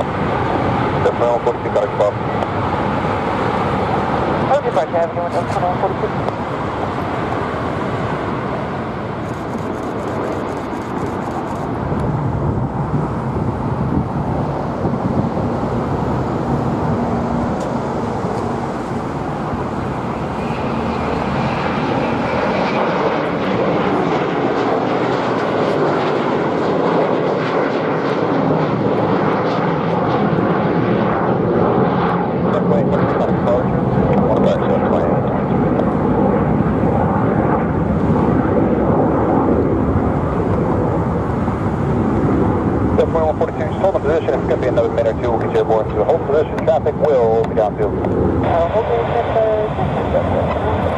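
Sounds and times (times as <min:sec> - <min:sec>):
jet engines at takeoff: 0:00.0 - 0:50.9.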